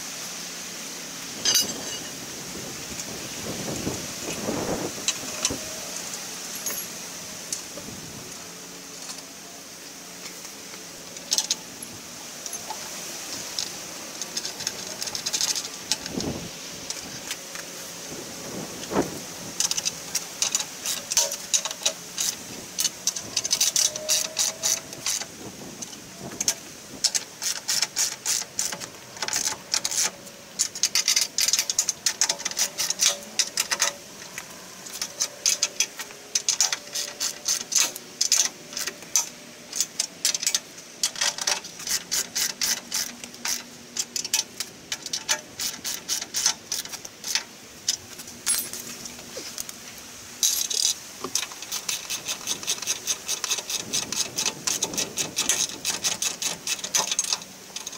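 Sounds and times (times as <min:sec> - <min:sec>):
ratchet wrench clicking: 0:36.4 - 0:47.4, 0:50.4 - 0:57.9.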